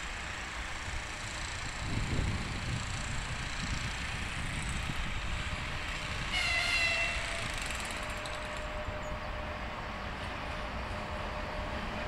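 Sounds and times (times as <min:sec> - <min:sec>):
train rumble: 0:00.0 - 0:12.0
locomotive horn blast: 0:06.3 - 0:07.5.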